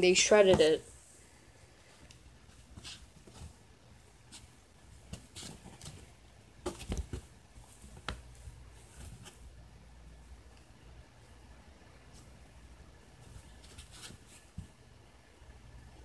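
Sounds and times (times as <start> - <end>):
kitten claws scratching fabric: 4.2 - 9.4, 13.2 - 14.7.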